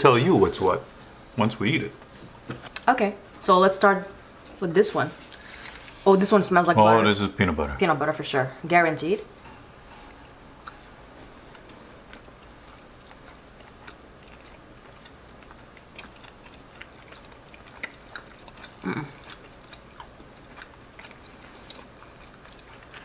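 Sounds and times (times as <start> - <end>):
wet chewing mouth clicks: 13.0 - 23.0
person humming: 18.8 - 19.3.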